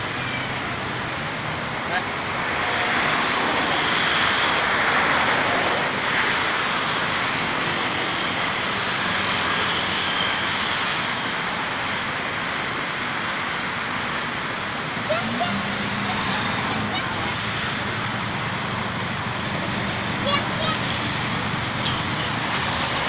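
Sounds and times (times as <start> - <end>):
passing traffic rushing: 0.0 - 23.0.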